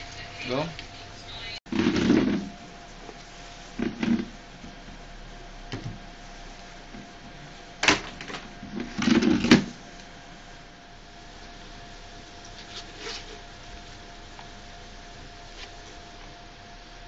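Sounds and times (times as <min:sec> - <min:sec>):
faint steady hum: 0:00.0 - 0:17.0
plastic chair being sat in: 0:01.7 - 0:02.6, 0:03.8 - 0:04.3, 0:07.8 - 0:09.8.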